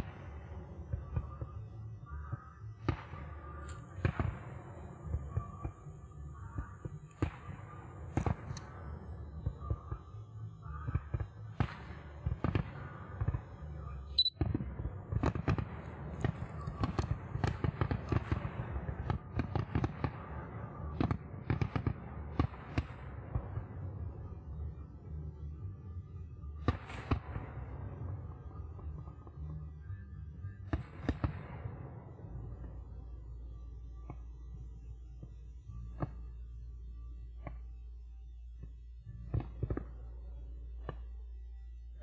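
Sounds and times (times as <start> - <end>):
firework bursts and crackles: 2.8 - 10.2, 10.9 - 24.1, 26.6 - 29.3, 30.7 - 34.4.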